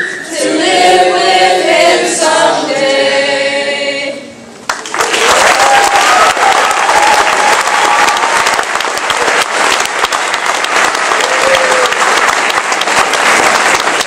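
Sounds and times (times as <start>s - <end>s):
audience applauding: 4.7s - 14.0s
person cheering: 11.2s - 12.0s.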